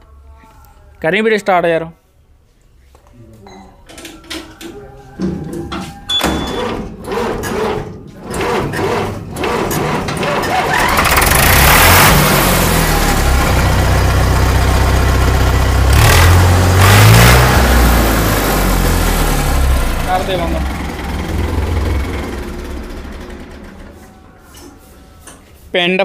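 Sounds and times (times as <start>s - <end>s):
tractor engine cranking: 5.9s - 24.7s
diesel engine running and revving: 7.0s - 24.2s.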